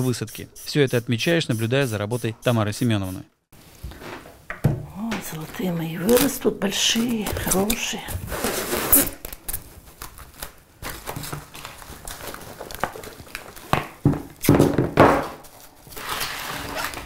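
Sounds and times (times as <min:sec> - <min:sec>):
plastic film crinkling: 0:05.3 - 0:14.0.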